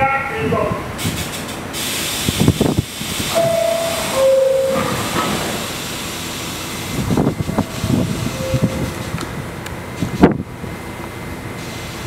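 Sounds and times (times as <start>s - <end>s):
pneumatic air hiss: 1.0s - 9.2s, 11.6s - 12.0s
two-tone door chime: 3.4s - 5.0s.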